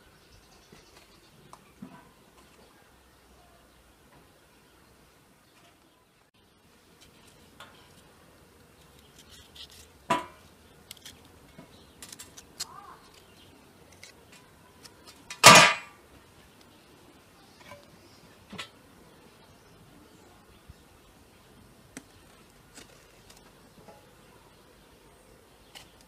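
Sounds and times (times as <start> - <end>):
loud knocks on metal: 15.4 - 15.9.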